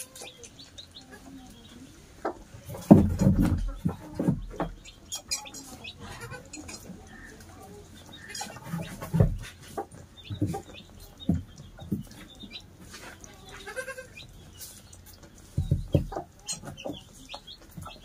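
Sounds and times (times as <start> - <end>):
goat kids bleating: 5.8 - 7.5, 13.2 - 14.3.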